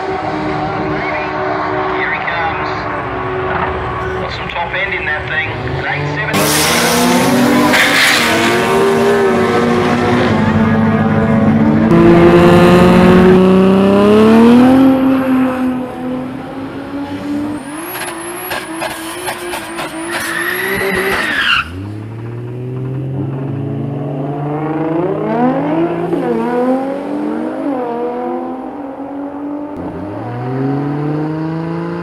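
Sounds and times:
car engine revving: 0.0 - 32.0
tyres squealing: 19.6 - 21.8.

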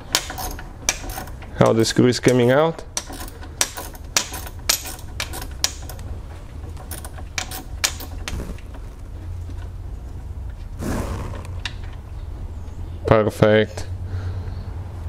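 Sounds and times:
ratchet clicking: 0.0 - 8.4.

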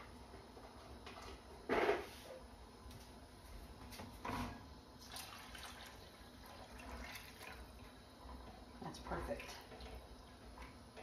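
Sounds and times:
liquid pouring and splashing: 5.0 - 8.5.

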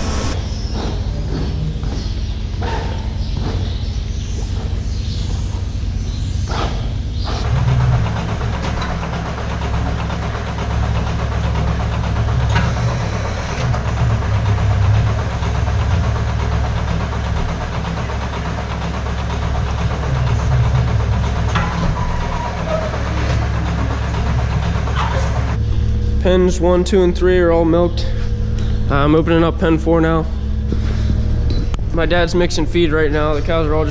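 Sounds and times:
milking machinery hum and hiss: 6.6 - 25.9.

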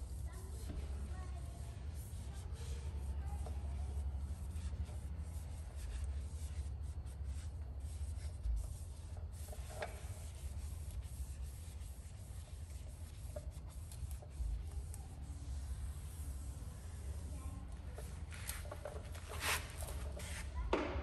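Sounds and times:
pad rubbing on wheel: 0.0 - 20.7.

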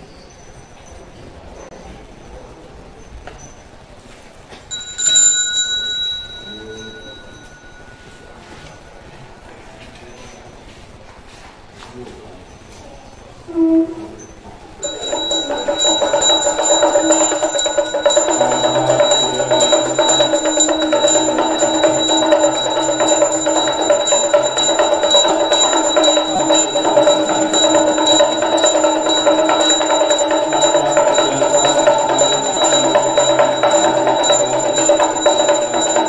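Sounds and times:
hand bell ringing rapidly: 4.7 - 8.4, 14.8 - 36.0.

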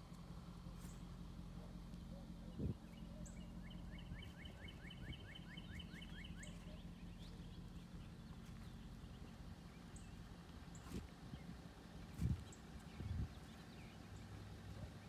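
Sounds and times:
faint low rumble: 0.0 - 15.0.

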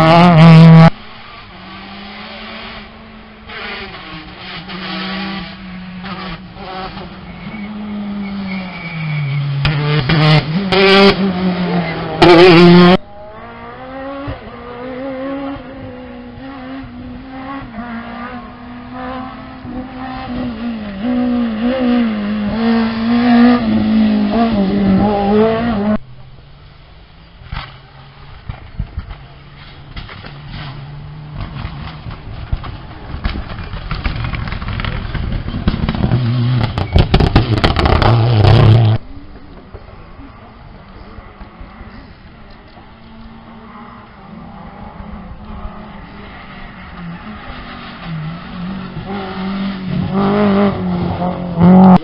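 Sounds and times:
rally car engine at full throttle: 0.0 - 52.0.

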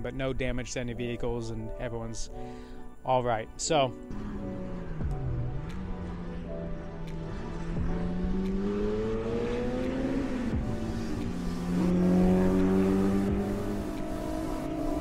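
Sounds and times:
distant race cars accelerating: 4.1 - 15.0.

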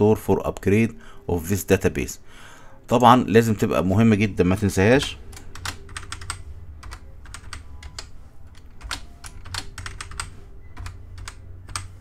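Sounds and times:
low steady hum: 0.0 - 12.0
keyboard keys tapping: 5.3 - 12.0.

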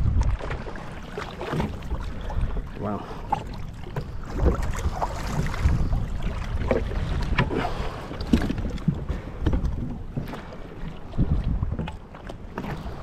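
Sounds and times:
water slapping against a hull: 0.0 - 13.0
wind buffeting microphone: 0.0 - 13.0.

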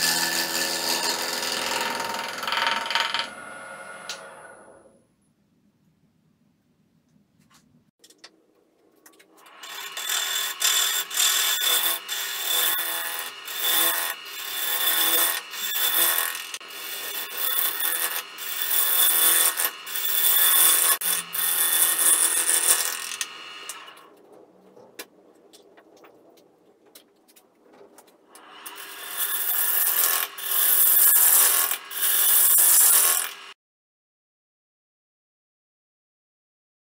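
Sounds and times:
bowl gouge cutting log on lathe: 0.0 - 4.8, 9.5 - 24.1, 28.4 - 33.6.

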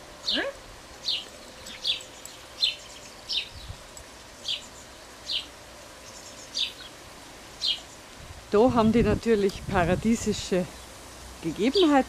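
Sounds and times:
bird chirping: 0.2 - 8.2.

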